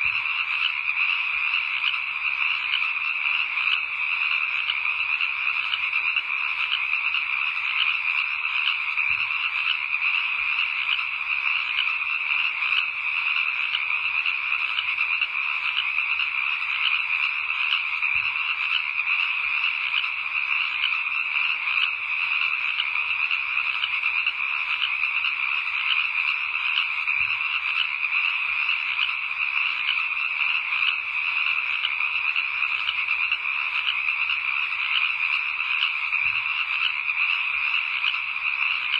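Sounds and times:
frogs trilling: 0:00.0 - 0:38.9.

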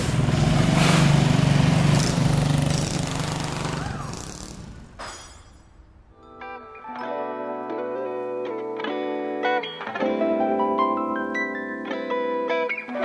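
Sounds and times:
small motorbike engine running: 0:00.0 - 0:05.0.

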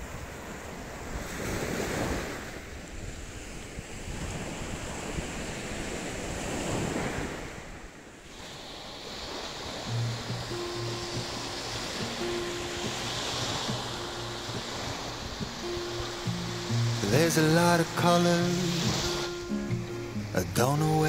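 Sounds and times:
small waves breaking on sand: 0:00.0 - 0:21.0.

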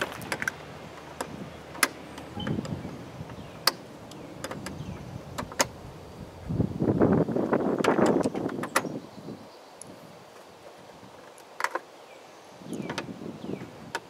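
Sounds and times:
sharp plastic clicks: 0:00.1 - 0:04.8, 0:11.3 - 0:11.9.

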